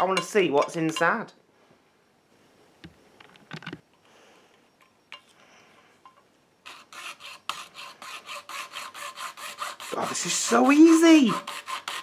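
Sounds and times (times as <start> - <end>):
hacksaw rasping: 6.7 - 12.0.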